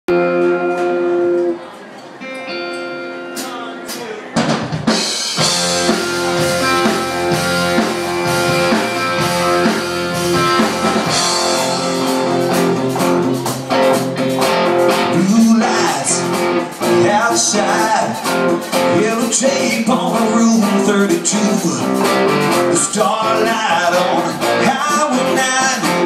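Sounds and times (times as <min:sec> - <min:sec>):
bass guitar: 0:00.1 - 0:01.6, 0:04.8 - 0:26.0
electric guitar chords: 0:00.1 - 0:04.0, 0:04.8 - 0:26.0
drum kit: 0:03.2 - 0:26.0.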